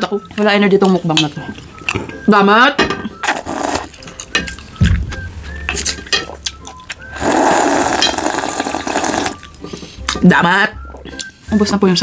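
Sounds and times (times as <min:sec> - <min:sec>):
loud slurp: 0:03.2 - 0:04.0, 0:07.1 - 0:09.4.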